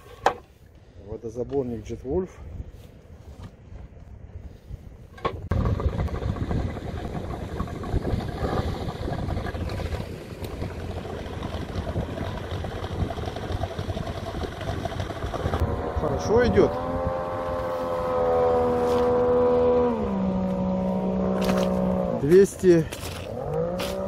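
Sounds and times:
outboard motor running: 5.4s - 24.0s.

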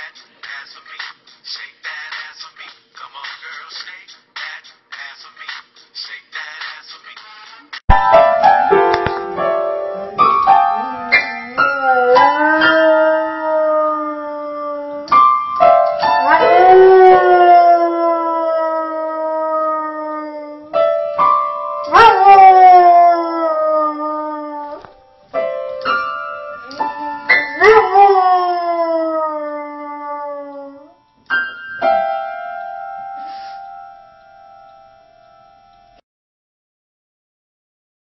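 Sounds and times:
piano chords: 7.9s - 18.1s, 20.7s - 24.0s, 25.0s - 29.0s, 31.3s - 35.7s
dog howling: 10.6s - 15.1s, 16.1s - 20.8s, 21.9s - 24.9s, 26.5s - 31.0s.

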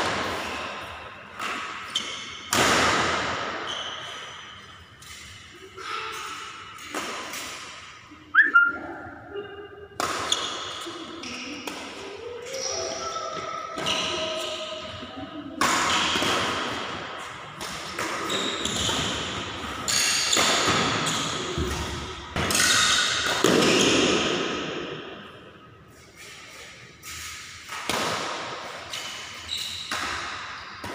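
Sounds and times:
racket hitting shuttlecock: 10.0s - 10.9s, 15.6s - 17.0s, 17.6s - 25.0s, 27.0s - 30.9s.

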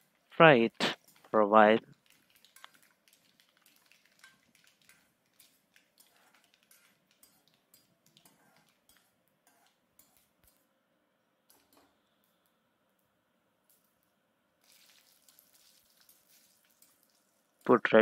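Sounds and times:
seeds frying in oil: 1.0s - 9.0s, 14.6s - 17.7s.

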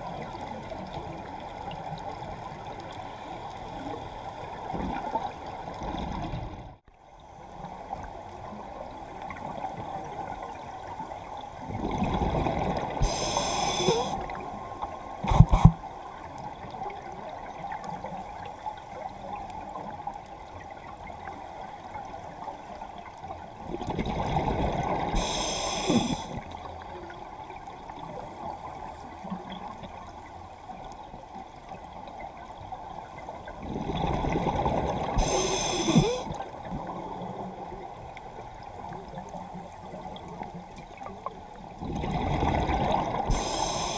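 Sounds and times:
steady underwater hiss: 0.0s - 43.9s
diver breathing through regulator: 13.0s - 14.2s, 15.2s - 15.8s, 25.1s - 26.4s, 35.2s - 36.4s, 43.3s - 43.9s.

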